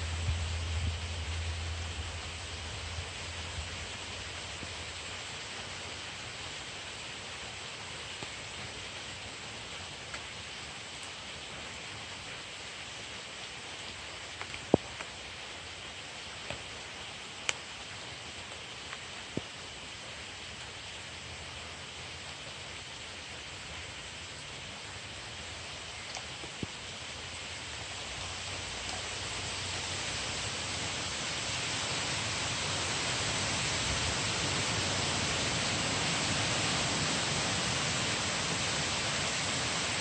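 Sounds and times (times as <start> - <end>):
low rumble of wind: 0.0 - 6.5, 23.8 - 40.0
heavy rain falling: 0.0 - 40.0.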